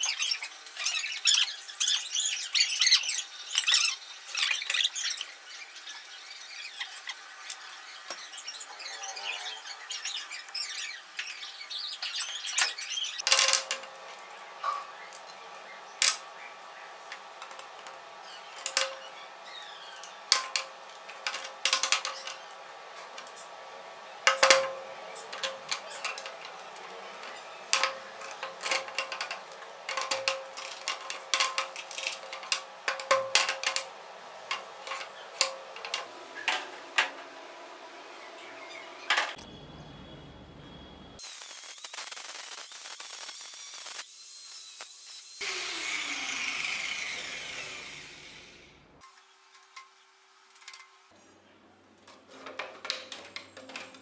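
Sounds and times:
plastic pipes clicking and knocking: 12.6s - 13.9s, 18.6s - 19.1s, 20.0s - 23.4s, 24.2s - 37.2s, 52.1s - 54.0s
angle grinder cutting wire mesh: 15.1s - 37.4s, 41.2s - 48.8s.

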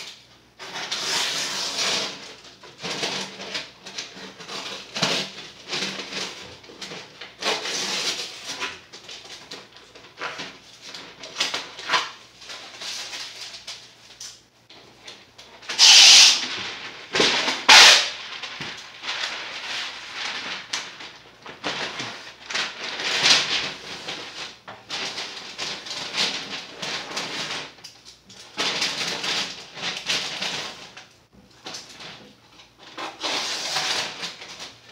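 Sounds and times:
paper rustling and crinkling: 0.6s - 34.9s
paper ripping: 15.6s - 27.8s.

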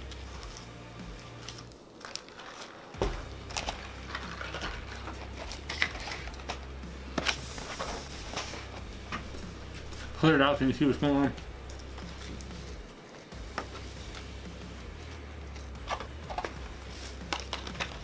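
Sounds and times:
packaging clicks and rustles: 1.4s - 9.2s, 15.6s - 18.0s
low steady hum: 3.0s - 18.0s.

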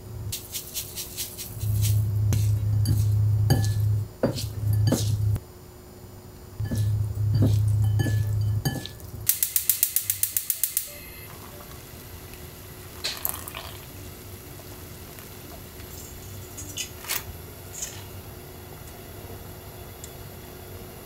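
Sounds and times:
low rumble: 0.0s - 0.4s, 1.5s - 5.4s, 6.6s - 9.3s
gas stove igniter clicking: 9.3s - 11.0s.

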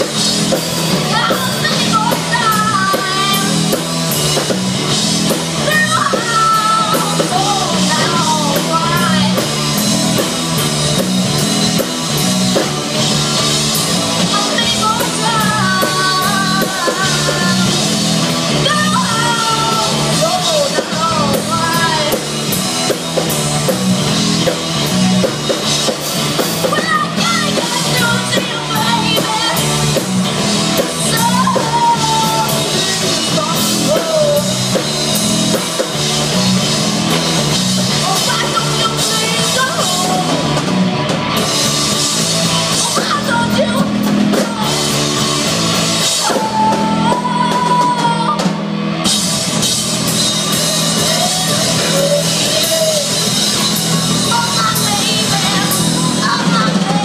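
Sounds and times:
bass guitar: 0.0s - 57.0s
distorted electric guitars: 0.0s - 57.0s
drum kit beat: 0.0s - 57.0s
lead vocal singing: 0.9s - 3.8s, 5.6s - 9.6s, 14.0s - 22.3s, 26.5s - 34.9s, 37.9s - 40.7s, 42.0s - 48.6s, 49.5s - 57.0s.

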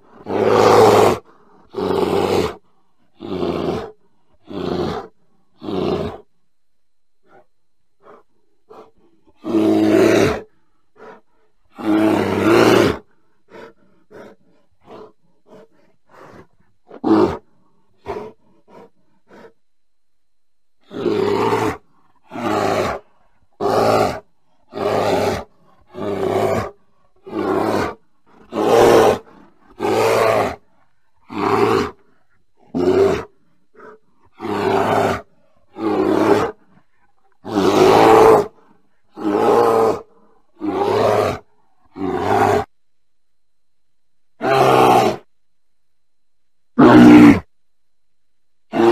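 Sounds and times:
bear calling: 20.8s - 42.7s, 46.8s - 47.5s.

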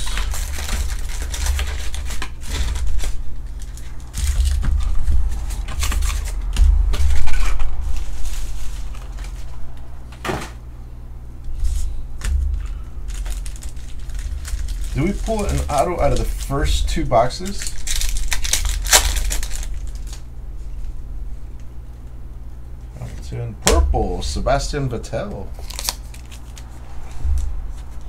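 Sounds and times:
foil wrappers crinkling: 0.0s - 9.7s, 11.6s - 20.3s, 25.5s - 28.0s
steady low hum: 0.0s - 28.0s.

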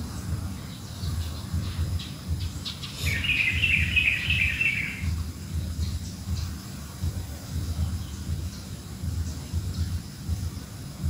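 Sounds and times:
songbird twittering: 0.5s - 6.7s.

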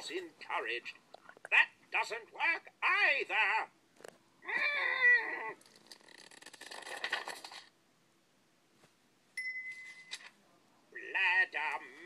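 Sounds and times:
wavering voice-like cry: 4.4s - 5.6s.

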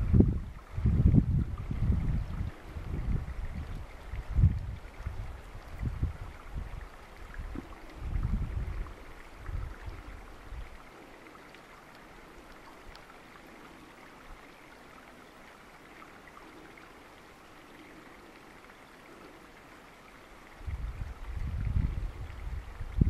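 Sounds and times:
stream water flowing: 0.0s - 23.0s.

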